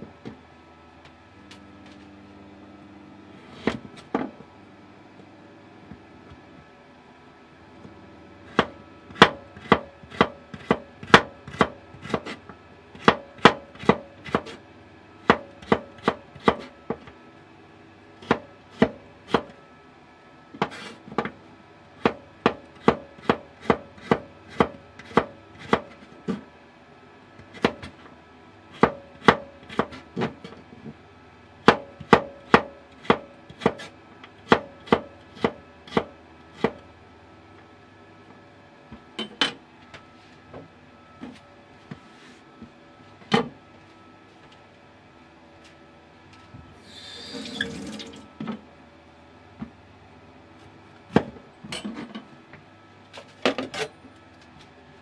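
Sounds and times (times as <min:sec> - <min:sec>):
knife chopping on wooden board: 0:08.5 - 0:12.4, 0:13.0 - 0:14.6, 0:15.2 - 0:17.0, 0:18.2 - 0:19.5, 0:22.0 - 0:26.4, 0:27.5 - 0:28.0, 0:28.8 - 0:30.4, 0:31.6 - 0:33.9, 0:34.5 - 0:36.8.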